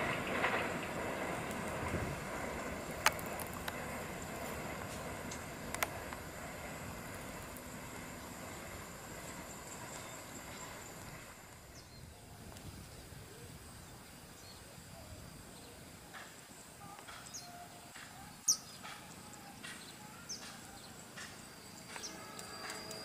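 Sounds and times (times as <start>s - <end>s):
faint outdoor background: 0.0s - 23.0s
birds chirping: 2.4s - 12.3s, 16.9s - 23.0s.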